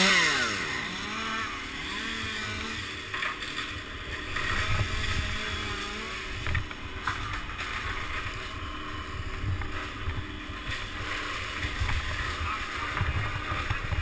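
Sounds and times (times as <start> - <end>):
chainsaw idling: 0.0 - 14.0
wind on microphone: 4.4 - 14.0.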